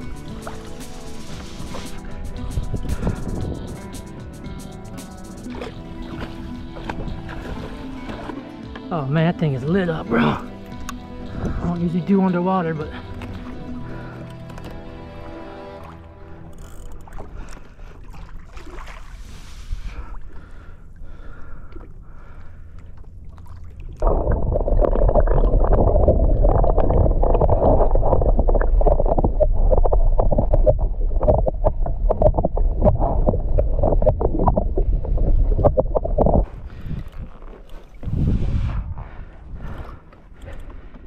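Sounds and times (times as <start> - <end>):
muffled underwater rush: 0.0 - 8.3, 23.4 - 40.1
seawater sloshing and gurgling: 0.0 - 41.0.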